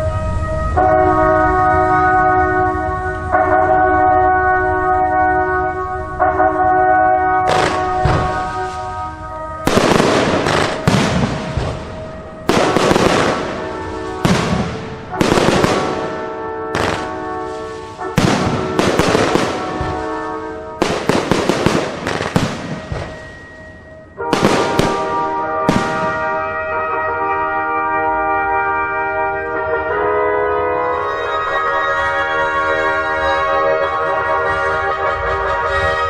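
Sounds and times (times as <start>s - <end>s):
music with long held chords: 0.0s - 36.0s
fireworks bangs: 7.4s - 27.0s.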